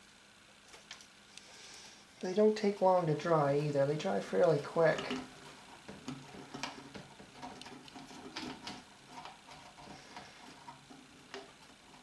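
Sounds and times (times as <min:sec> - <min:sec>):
wooden sticks clicking and scraping: 0:03.3 - 0:12.0.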